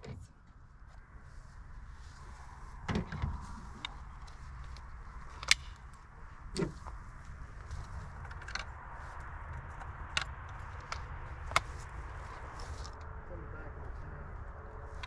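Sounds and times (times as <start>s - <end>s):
wind rumble on microphone: 0.0s - 15.0s
shotgun metallic clicks and knocks: 2.9s - 6.0s, 7.8s - 8.7s.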